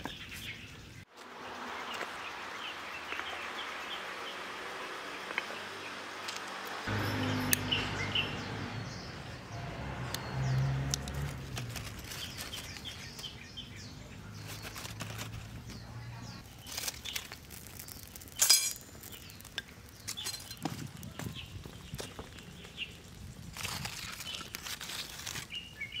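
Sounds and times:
small birds chirping: 0.0s - 26.0s
fire crackling and snapping: 10.1s - 13.7s, 16.4s - 26.0s.

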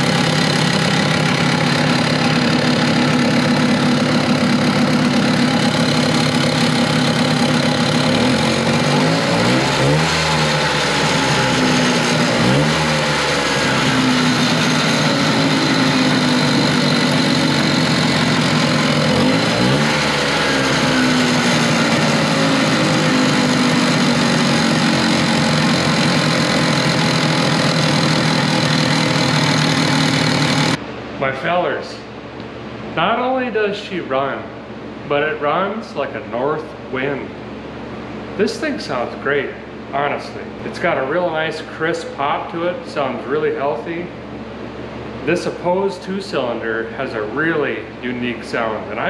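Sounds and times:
snowmobile two-stroke engine revving: 0.0s - 30.8s.

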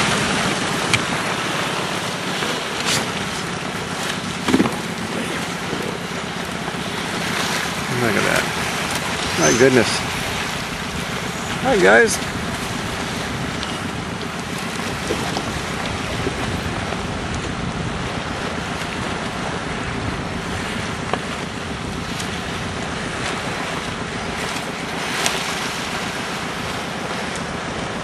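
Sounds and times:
boat motor hum: 0.0s - 28.0s
water from moving boat: 0.0s - 28.0s
wind on microphone: 0.0s - 28.0s.

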